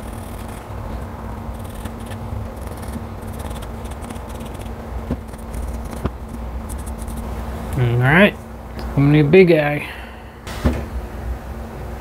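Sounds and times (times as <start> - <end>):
pencil scratching on bark: 1.5 - 7.2.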